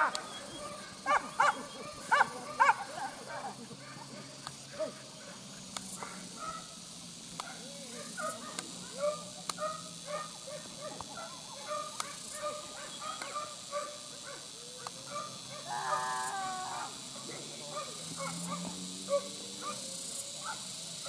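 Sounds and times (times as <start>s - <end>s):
dogs barking and yelping: 0.0s - 5.1s, 7.4s - 20.7s
dog long drawn-out cry: 15.1s - 17.0s.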